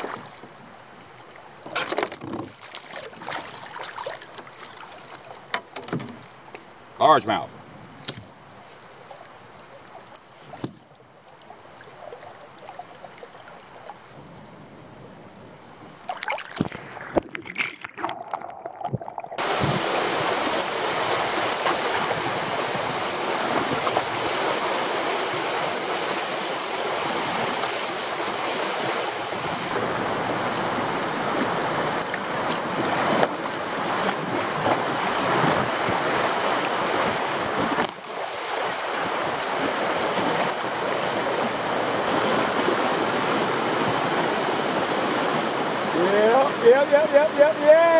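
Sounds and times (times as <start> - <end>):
white water rushing: 0.0 - 5.5, 15.8 - 47.9
knocks on kayak: 1.7 - 2.7.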